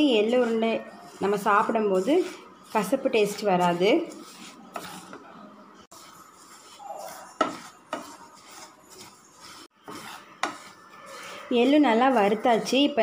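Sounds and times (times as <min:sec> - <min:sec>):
seeds scraping across pan: 0:00.0 - 0:05.2, 0:05.9 - 0:13.0.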